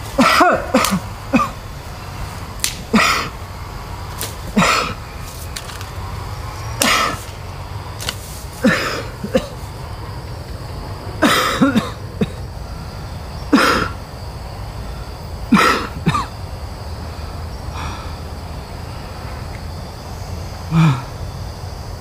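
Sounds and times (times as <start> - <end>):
steady low hum: 0.0 - 22.0
person coughing: 0.2 - 1.6, 2.9 - 3.3, 4.6 - 5.0, 8.6 - 9.6, 11.2 - 12.4, 15.5 - 16.3.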